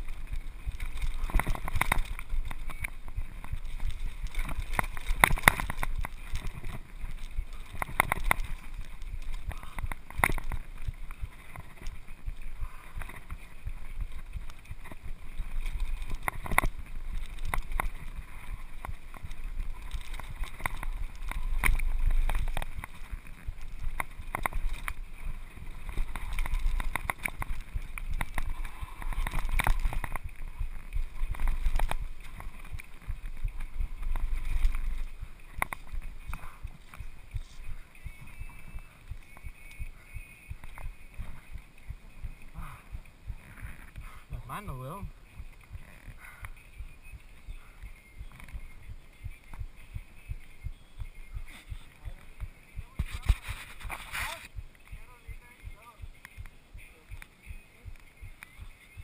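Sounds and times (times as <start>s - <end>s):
mountain bike clattering: 0.0s - 39.8s.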